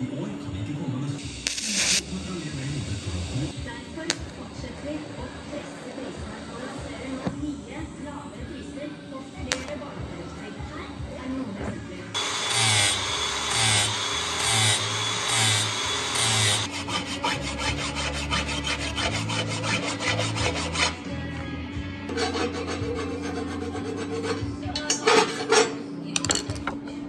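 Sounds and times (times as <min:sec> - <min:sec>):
angle grinder grinding metal: 0:01.4 - 0:04.2, 0:12.2 - 0:21.0
hand file rasping on metal: 0:12.2 - 0:21.0, 0:22.1 - 0:25.8.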